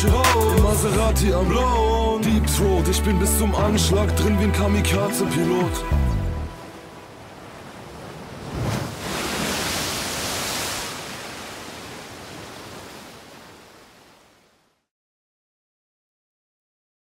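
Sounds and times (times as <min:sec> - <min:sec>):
rushing surf-like noise effect: 0:06.6 - 0:14.0.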